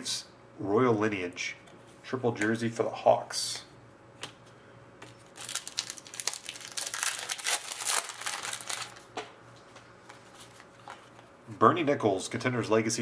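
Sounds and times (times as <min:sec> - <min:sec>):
foil wrapper tearing and crinkling: 0:05.2 - 0:09.1.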